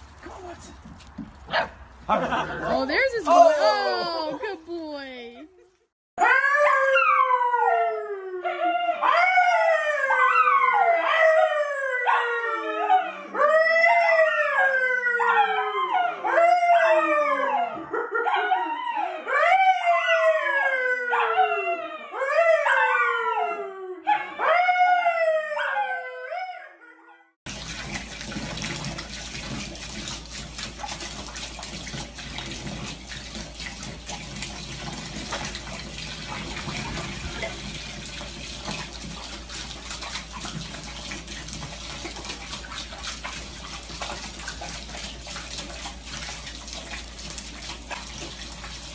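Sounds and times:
man howling: 0:02.3 - 0:04.4
dog howling: 0:06.2 - 0:27.0
water rushing in a bathtub: 0:27.5 - 0:48.9.

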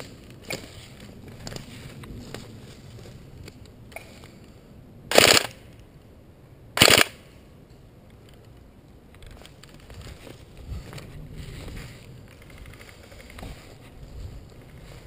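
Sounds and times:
airsoft rifle bursts: 0:05.1 - 0:05.6, 0:06.8 - 0:07.2.

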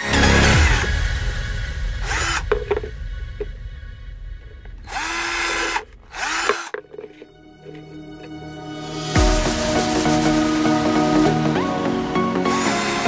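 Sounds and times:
cordless drill running: 0:00.2 - 0:01.0, 0:02.0 - 0:02.9, 0:04.8 - 0:07.9, 0:12.4 - 0:13.0.

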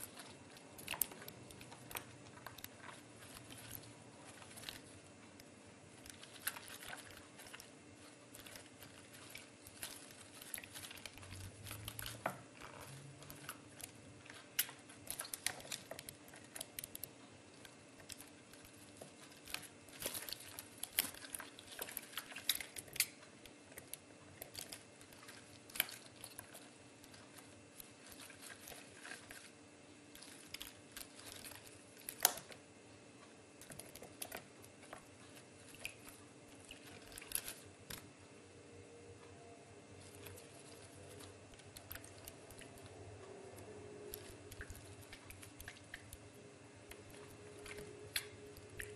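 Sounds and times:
faint steady hum: 0:00.0 - 0:48.9
lettuce leaves crinkling: 0:05.9 - 0:23.2.

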